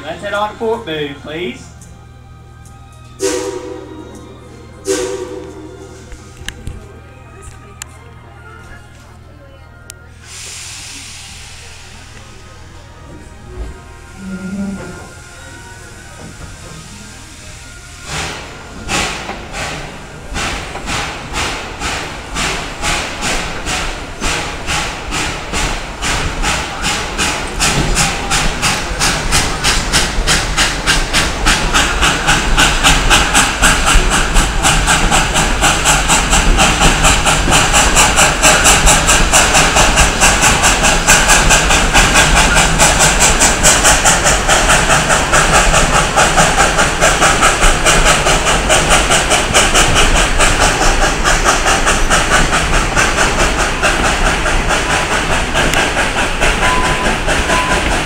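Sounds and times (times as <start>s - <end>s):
steam locomotive chuffing: 3.2s - 6.8s, 10.1s - 58.0s
steam hiss: 10.2s - 12.4s, 16.0s - 58.0s
train wheels rattling on rails: 10.3s - 58.0s.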